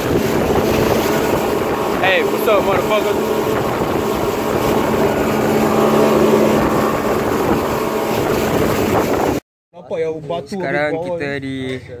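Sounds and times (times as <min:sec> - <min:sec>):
rush of wind and water: 0:00.0 - 0:09.4
speedboat engine drone: 0:00.0 - 0:09.4.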